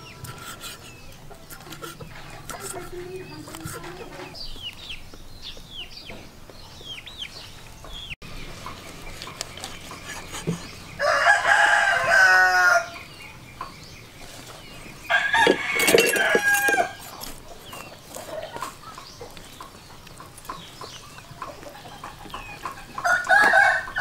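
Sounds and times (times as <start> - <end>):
rooster crowing: 11.0 - 13.0, 15.1 - 17.0, 22.9 - 24.0.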